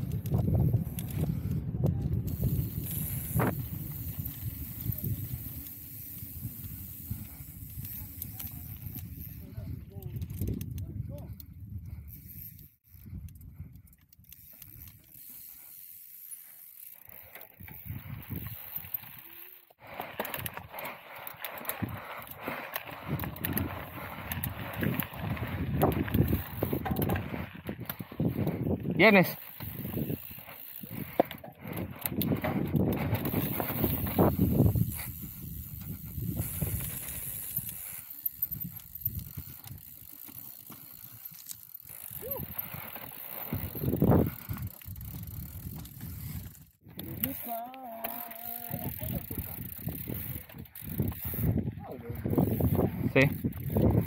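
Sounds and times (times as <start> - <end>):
wind on camera: 0.0 - 15.1, 17.6 - 19.2, 21.6 - 40.1, 42.0 - 47.4, 48.6 - 54.0
bike ticking and rattling: 0.0 - 54.0
scattered clicks: 16.8 - 28.5
tyres rumbling on trail: 19.8 - 54.0.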